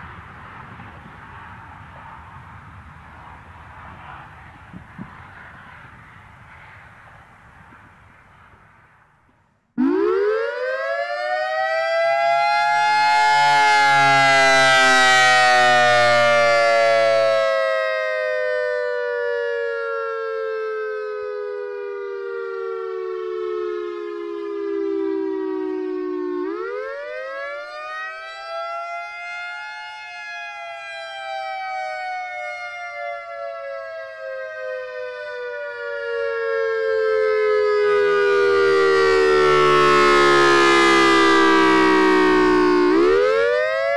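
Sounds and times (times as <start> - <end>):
warning siren wailing: 9.8 - 43.9.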